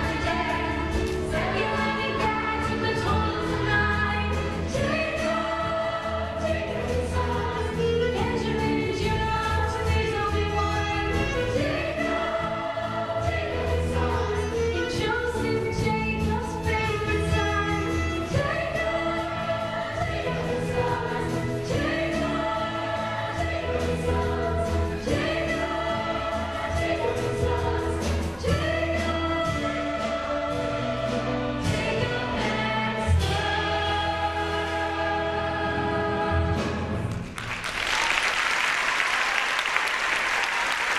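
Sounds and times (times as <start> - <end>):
chorus singing: 0.0 - 37.1
audience applause: 37.1 - 40.9.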